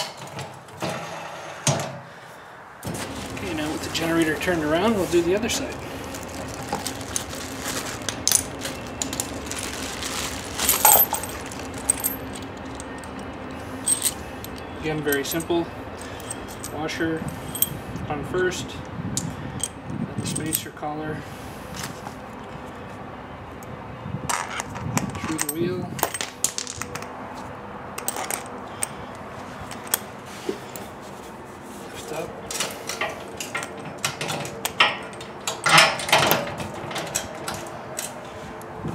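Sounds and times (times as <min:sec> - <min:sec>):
plastic bag rustling: 0:02.8 - 0:13.2
metal hardware clinking in bag: 0:03.0 - 0:17.8, 0:19.6 - 0:20.7, 0:25.2 - 0:27.0, 0:28.0 - 0:29.0
light metallic clinks and clicks: 0:10.6 - 0:17.8.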